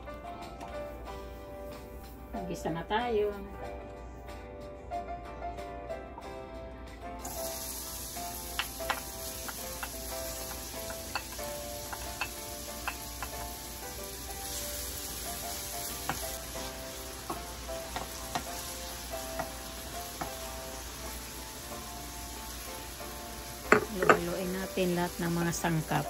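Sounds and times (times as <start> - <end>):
onion sizzling in oil: 7.2 - 26.0
wooden spoon knocking metal pan: 8.6 - 13.4, 23.7 - 24.4.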